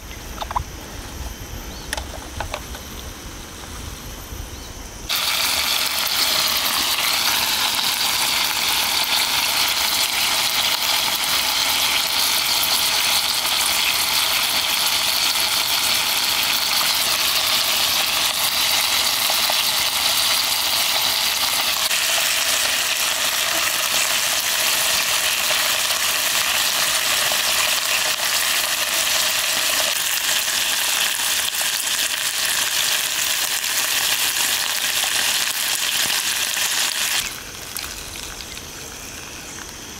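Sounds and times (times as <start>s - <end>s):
meat sizzling in hot broth: 5.1s - 39.7s.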